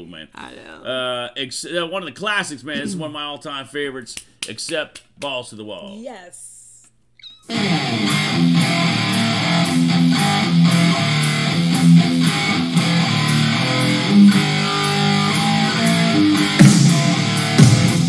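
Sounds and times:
electric guitar riff: 7.4s - 18.0s
bass guitar: 7.5s - 18.0s.

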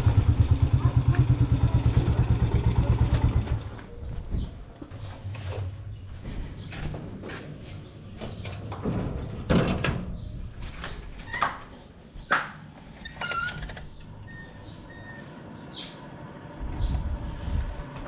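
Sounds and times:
footsteps: 3.8s - 8.3s
metal door knocks and clatter: 8.2s - 11.6s.

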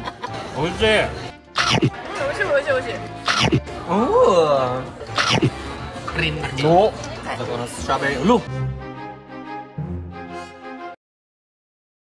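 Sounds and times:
music with sustained notes: 7.5s - 11.0s.

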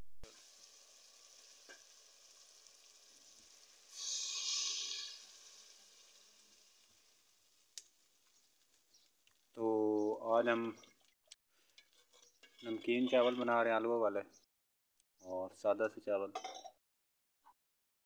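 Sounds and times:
potatoes sizzling in oil: 0.2s - 9.6s
water hitting hot oil: 0.2s - 9.6s.

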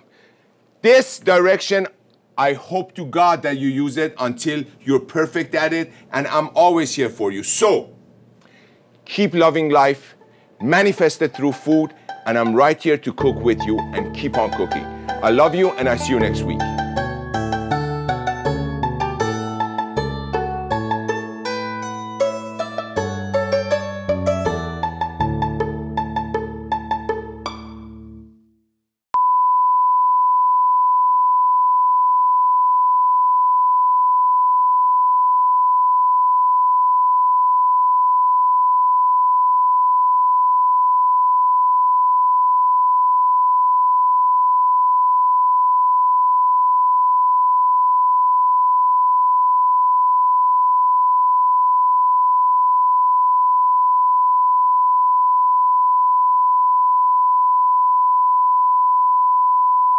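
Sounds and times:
steady test tone beep: 29.2s - 59.9s.

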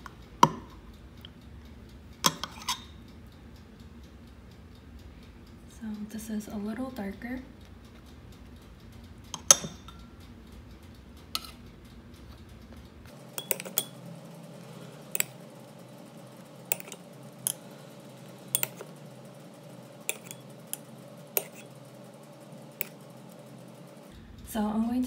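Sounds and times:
metal spoon clinking against pot: 9.4s - 10.0s, 13.4s - 14.0s, 15.1s - 15.4s, 16.7s - 17.6s, 18.5s - 18.9s, 20.0s - 21.8s.

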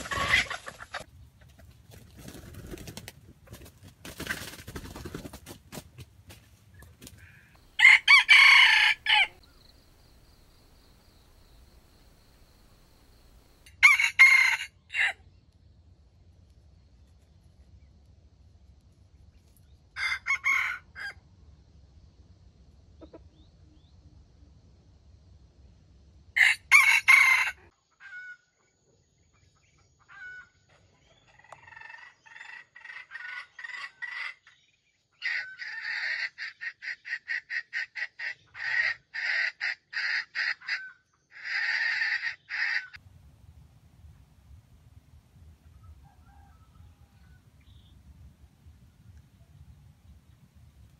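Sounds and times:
rapid clucking calls: 0.0s - 5.8s, 35.4s - 43.0s
rooster crowing: 7.5s - 9.5s, 13.6s - 15.2s, 20.0s - 21.2s, 26.4s - 28.3s, 45.8s - 47.9s.

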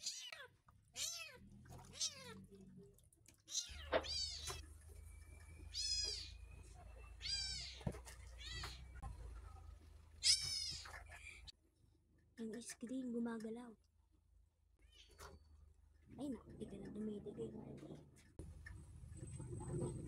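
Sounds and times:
kitten meowing: 0.0s - 2.4s, 3.5s - 4.6s, 7.2s - 7.8s, 8.4s - 8.8s.

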